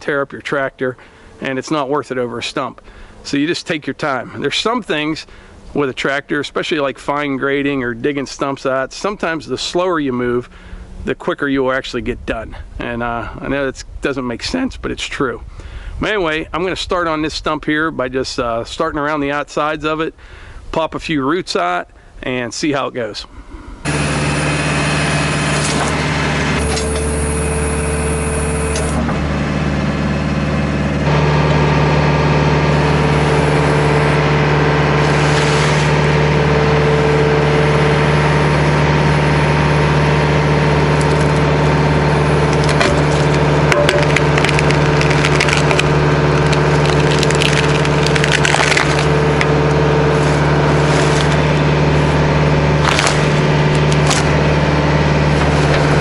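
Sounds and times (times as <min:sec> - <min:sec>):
diesel tractor engine running: 0:00.0 - 0:11.2, 0:23.7 - 0:56.0
wood cracking and snapping: 0:42.5 - 0:49.8, 0:50.8 - 0:51.4, 0:52.8 - 0:54.4.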